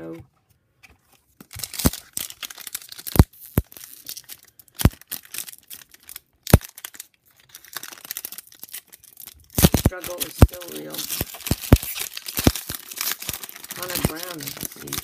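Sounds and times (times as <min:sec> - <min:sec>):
wrapper tearing and crinkling: 0:01.4 - 0:15.0
knocks of cards being handled: 0:09.6 - 0:15.0.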